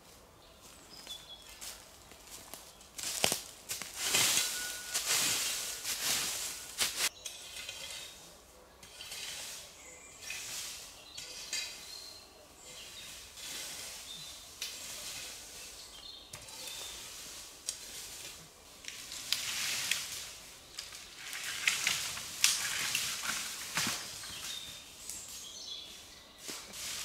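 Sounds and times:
crackling rustles with clicks: 2.1 - 8.2, 17.6 - 25.4
bird-like chirps: 15.5 - 17.1.

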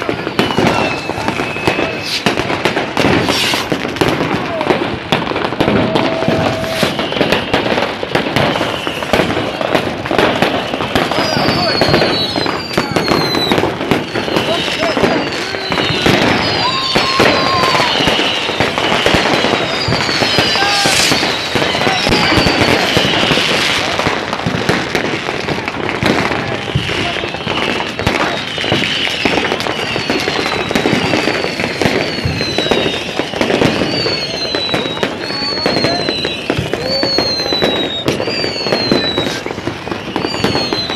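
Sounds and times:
firecrackers crackling and banging: 0.0 - 40.9
high descending whistle: 5.5 - 9.2, 11.0 - 23.9, 27.2 - 40.9.

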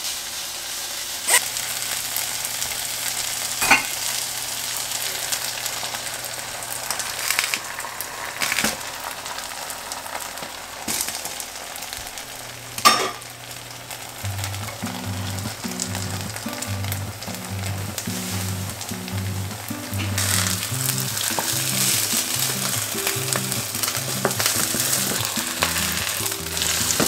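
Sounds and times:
potatoes sizzling in a pan: 0.0 - 27.0
soft background music: 14.2 - 27.0.

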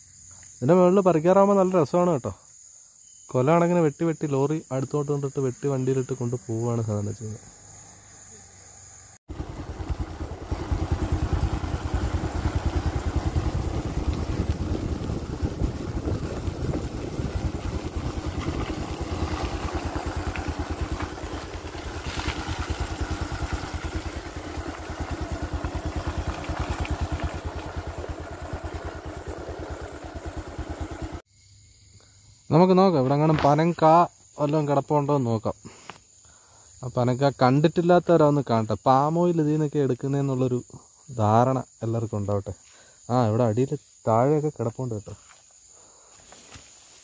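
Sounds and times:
motorcycle engine running: 9.3 - 31.2.

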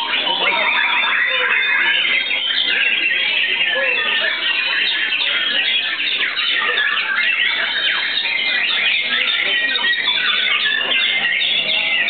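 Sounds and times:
birds singing whistles and trills: 0.0 - 12.0.

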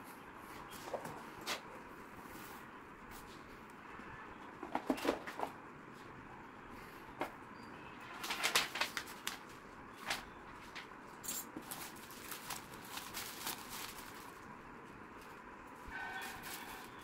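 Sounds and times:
packaging crinkling and rustling: 8.1 - 14.5, 16.2 - 17.0.

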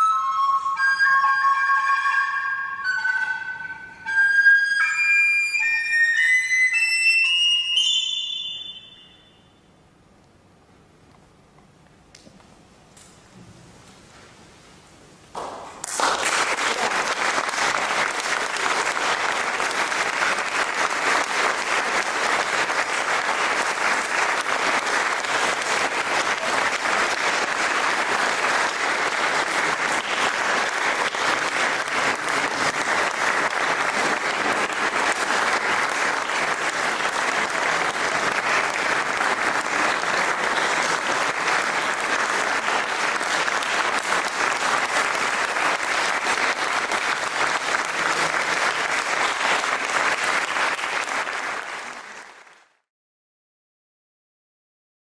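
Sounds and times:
audience applauding: 15.4 - 52.9.

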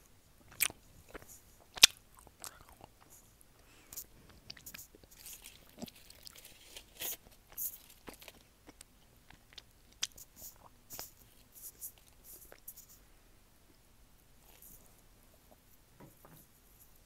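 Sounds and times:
chewing chocolate crunches: 0.5 - 3.1, 4.0 - 11.1.

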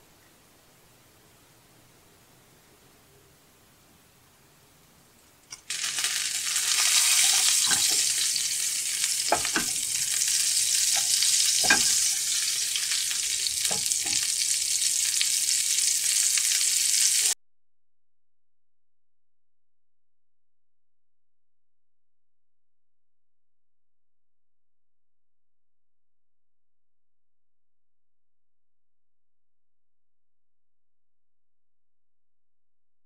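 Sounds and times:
butter sizzling in a pan: 5.5 - 17.4.

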